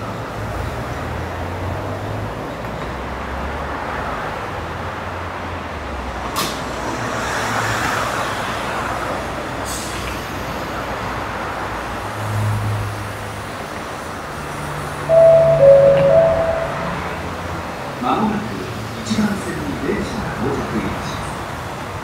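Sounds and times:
electric train humming: 0:15.1 - 0:17.3.

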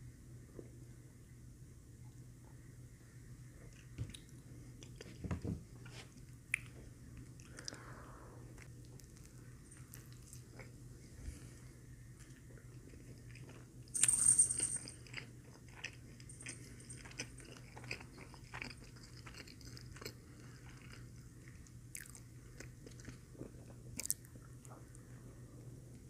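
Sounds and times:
close chewing: 0:14.9 - 0:24.8.

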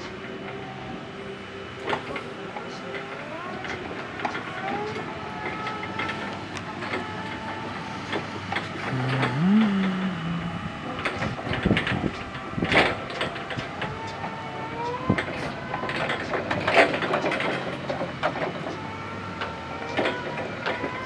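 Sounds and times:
electric whine of a reach truck: 0:00.0 - 0:21.0
low hum: 0:05.0 - 0:12.7.

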